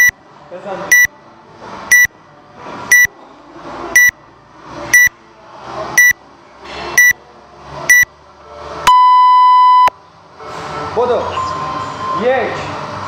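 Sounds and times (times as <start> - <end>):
long lower beep: 8.9 - 9.9
short high beeps: 8.9 - 9.9.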